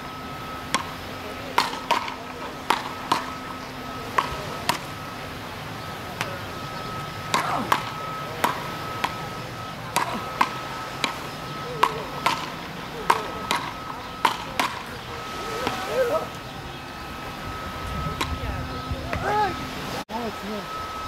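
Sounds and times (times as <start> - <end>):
wooden paddles hitting ball: 0.7 - 3.4, 4.1 - 4.9, 7.3 - 9.3, 9.9 - 14.9.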